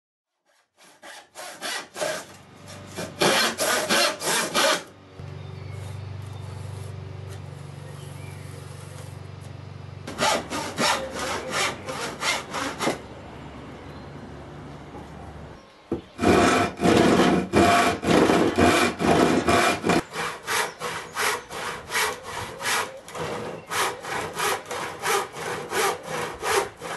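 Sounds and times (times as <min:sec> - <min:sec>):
hand saw cutting wood: 0:00.4 - 0:04.9, 0:10.1 - 0:13.0, 0:16.2 - 0:26.9
steady low hum: 0:04.9 - 0:12.2.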